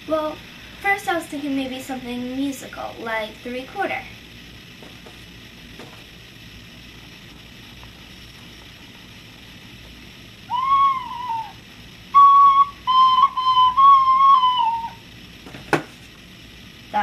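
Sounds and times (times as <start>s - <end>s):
plastic recorder played badly: 10.5s - 15.0s.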